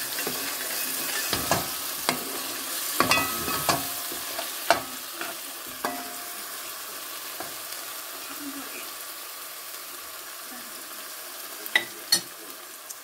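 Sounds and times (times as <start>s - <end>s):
sauce sizzling: 0.0s - 13.0s
metal spoon scraping a pot: 0.1s - 4.6s.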